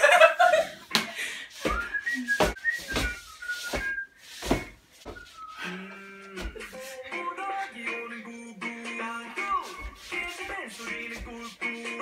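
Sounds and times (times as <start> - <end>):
dull thumps: 1.6 - 5.5
whistled tune: 1.6 - 6.5, 7.8 - 8.5.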